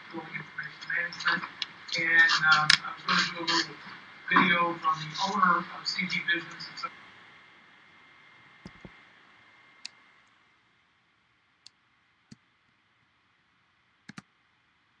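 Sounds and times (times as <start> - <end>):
faint sharp clicks: 14.1 - 14.3.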